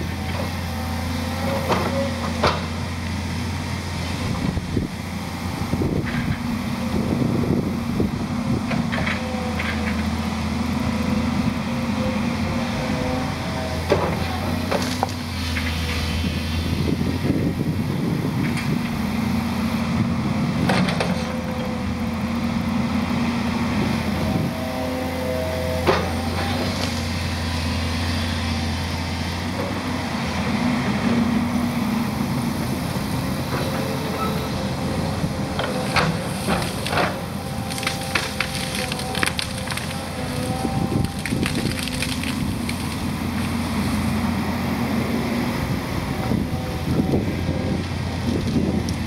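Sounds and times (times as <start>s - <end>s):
excavator diesel engine running: 0.0s - 49.0s
branches cracking and snapping: 13.9s - 15.8s, 35.6s - 44.1s
hydraulic whine: 23.7s - 49.0s.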